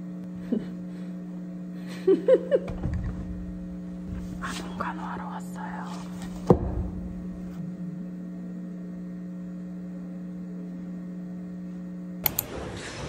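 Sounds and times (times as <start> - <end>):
steady electrical hum: 0.0 - 13.0
noisy rustling background: 4.0 - 6.5
sharp clicks: 12.2 - 12.5.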